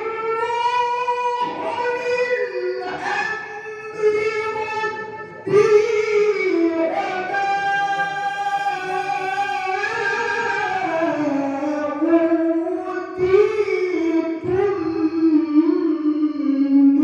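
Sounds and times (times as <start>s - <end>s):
man reciting melodically: 0.0s - 17.0s.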